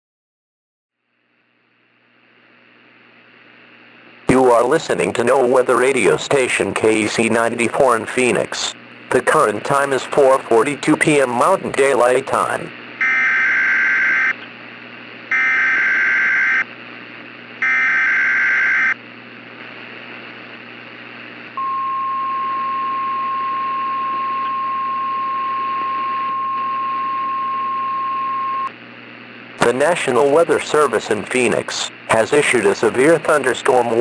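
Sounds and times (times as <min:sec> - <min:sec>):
faint radio hiss: 0:01.8 - 0:12.9, 0:29.0 - 0:34.0
steady warning alarm tone: 0:13.0 - 0:14.4, 0:15.3 - 0:16.7, 0:17.6 - 0:19.0, 0:21.6 - 0:28.7.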